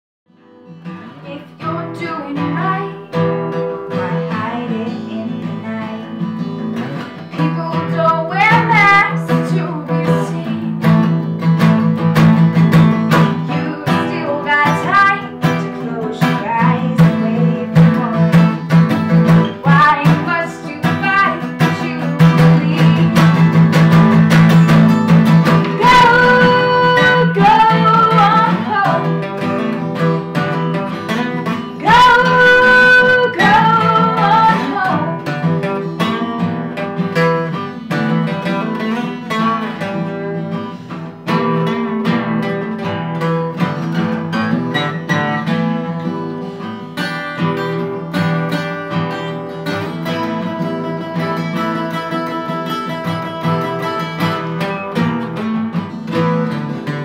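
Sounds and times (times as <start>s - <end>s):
acoustic guitars strumming: 0.3s - 57.0s
woman singing: 1.2s - 6.6s, 7.2s - 11.2s, 12.9s - 37.3s.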